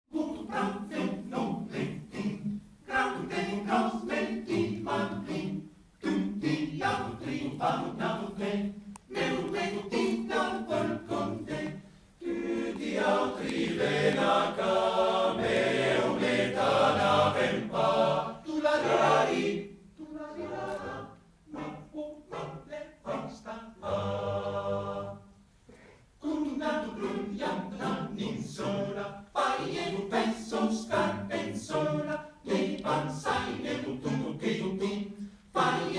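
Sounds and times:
male choir singing a cappella: 0:00.1 - 0:25.4, 0:26.2 - 0:35.9
singers breathing: 0:25.4 - 0:26.2, 0:35.2 - 0:35.5.

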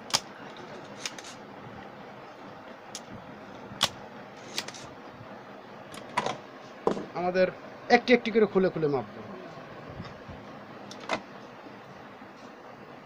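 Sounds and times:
desoldering pump snapping: 0:00.0 - 0:01.4, 0:03.8 - 0:04.9.

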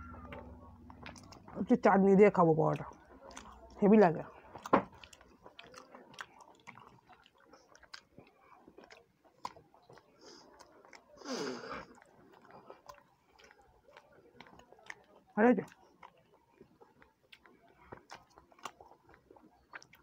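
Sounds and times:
people chewing food: 0:00.0 - 0:20.0.

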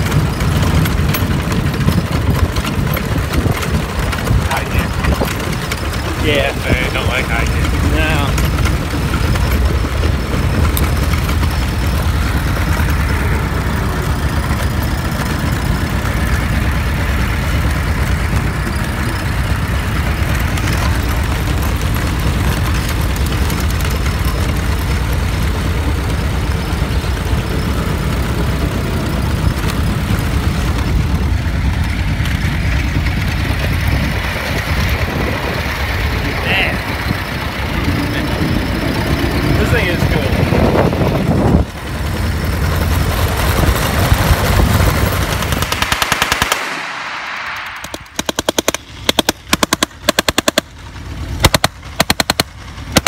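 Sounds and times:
car engine running: 0:00.0 - 0:53.0.

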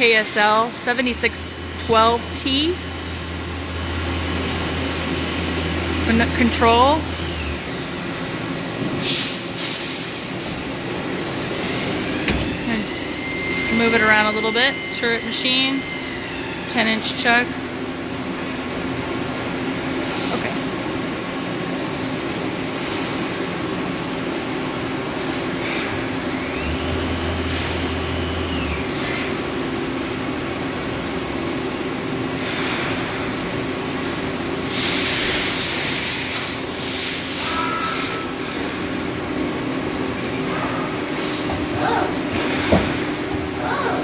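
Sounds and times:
machine tool humming: 0:00.0 - 0:09.0, 0:10.0 - 0:19.5, 0:24.8 - 0:32.5
machine whine: 0:00.0 - 0:19.6, 0:25.4 - 0:33.4.

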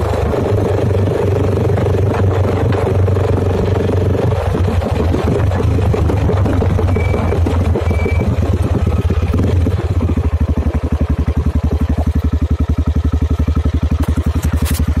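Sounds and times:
loud motorcycle engine idling: 0:00.0 - 0:15.0.

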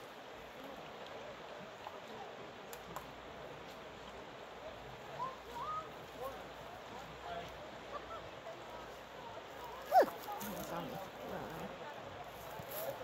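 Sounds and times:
faint voices talking: 0:00.0 - 0:13.0.

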